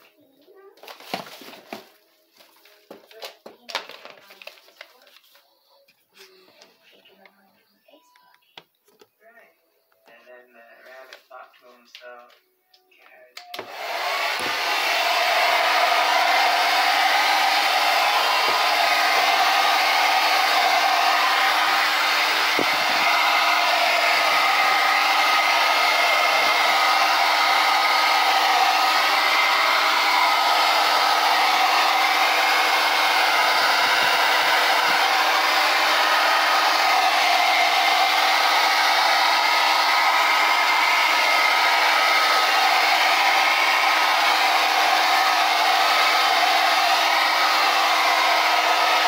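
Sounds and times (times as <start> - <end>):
hot-air blower rushing air: 13.6 - 49.0.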